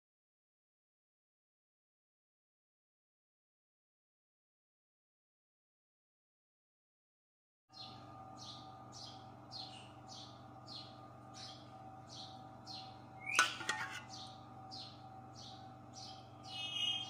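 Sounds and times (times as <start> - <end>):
bird chirping: 7.7 - 17.0
steady low hum: 7.7 - 17.0.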